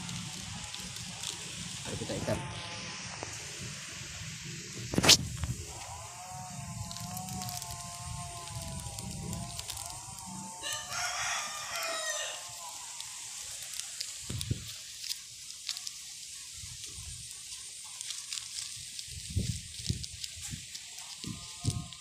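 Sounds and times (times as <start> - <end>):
rooster crowing: 5.7 - 13.4.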